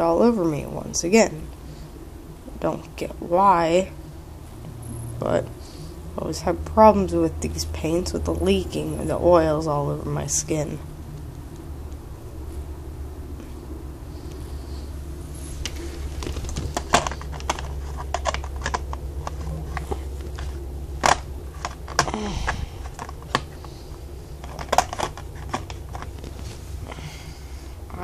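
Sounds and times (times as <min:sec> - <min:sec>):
steady low hum: 0:00.0 - 0:28.0
small objects clicking and clattering: 0:15.6 - 0:23.6, 0:24.4 - 0:26.3.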